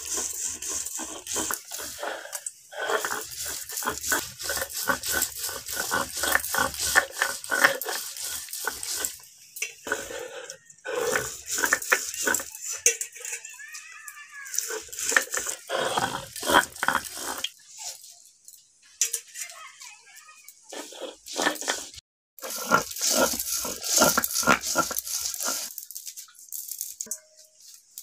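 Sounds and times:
metal blade scraping on stone: 0.0 - 13.4, 14.5 - 17.6, 20.7 - 25.8.

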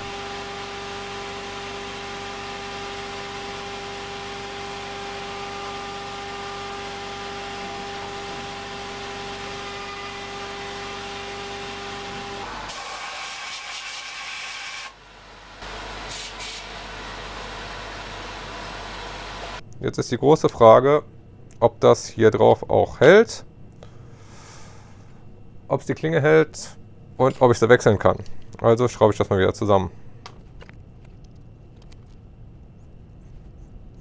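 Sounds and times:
milling spindle whine: 0.0 - 12.6
hiss: 12.7 - 15.0, 16.1 - 16.7.

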